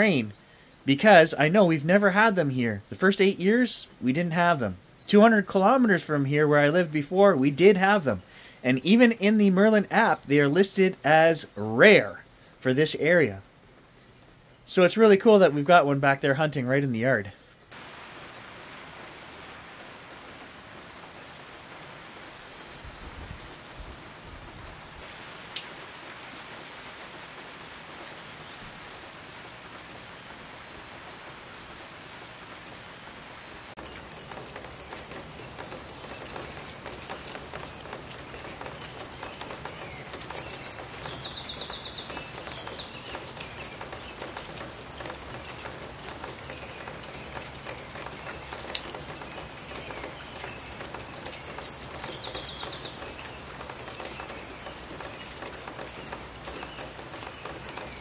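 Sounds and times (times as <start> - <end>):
steady rain falling: 0.0 - 58.0
songbird trilling: 38.6 - 44.3, 46.1 - 58.0.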